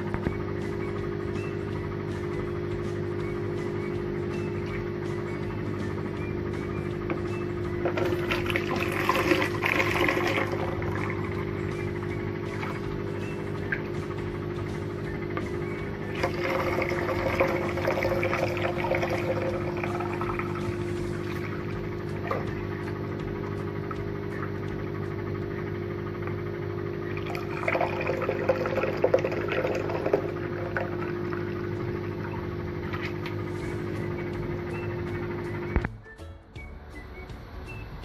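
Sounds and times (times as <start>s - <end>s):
steady low hum: 0.0s - 38.0s
liquid being poured: 7.8s - 11.5s, 16.1s - 22.6s, 27.2s - 33.3s.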